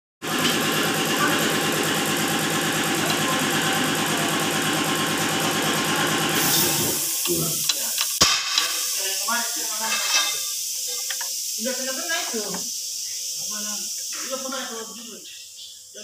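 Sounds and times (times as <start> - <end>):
engine running with fast pulse: 0.2 - 7.0.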